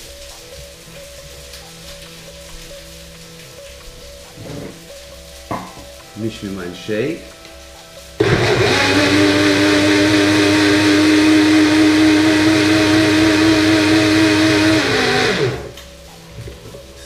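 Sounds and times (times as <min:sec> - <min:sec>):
blender motor running: 0:08.2 - 0:15.7.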